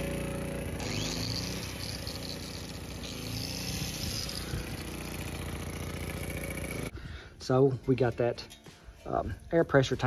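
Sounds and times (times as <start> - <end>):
angle grinder whine: 0.0 - 6.9
generator engine running: 0.0 - 7.2.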